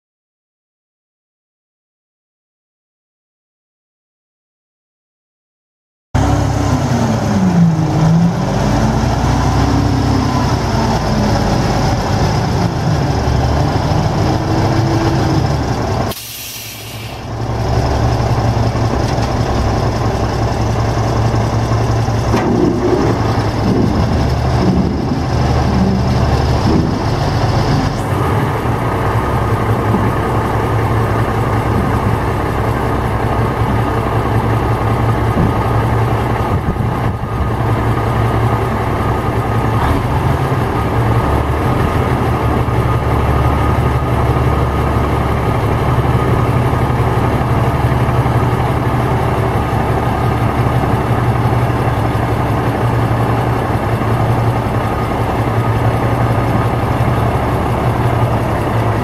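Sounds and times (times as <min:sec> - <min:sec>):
diesel truck engine running: 0:06.2 - 0:59.0
brief hiss: 0:16.1 - 0:17.3.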